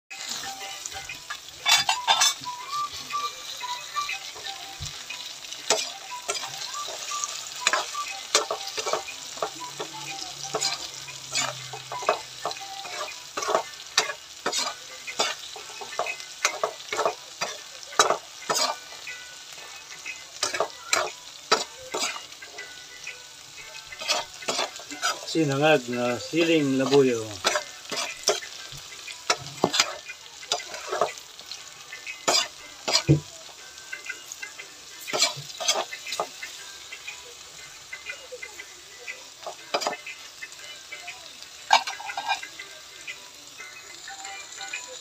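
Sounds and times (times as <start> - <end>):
metal spatula scraping pan: 0.1 - 4.5, 5.6 - 19.0, 20.4 - 22.4, 23.8 - 31.2, 32.2 - 33.2, 35.0 - 36.6, 41.7 - 42.5
chilies and garlic sizzling in oil: 0.1 - 45.0.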